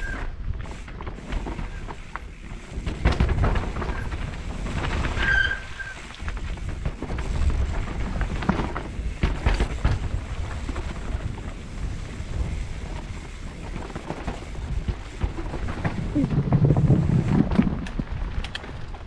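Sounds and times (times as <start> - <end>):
bike rattling and knocking: 0.0 - 19.0
tyres rolling over dirt: 0.0 - 19.0
wind rumble on microphone: 0.0 - 19.0
short high squeak: 5.2 - 6.1.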